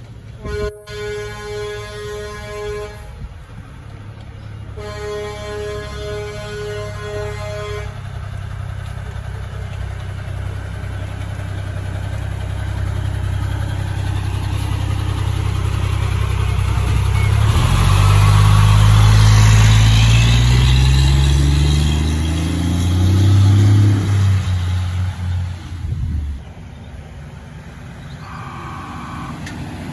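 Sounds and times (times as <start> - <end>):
diesel engine idling and revving: 0.0 - 29.9
truck horn: 0.4 - 3.3, 4.7 - 8.1, 28.2 - 29.6.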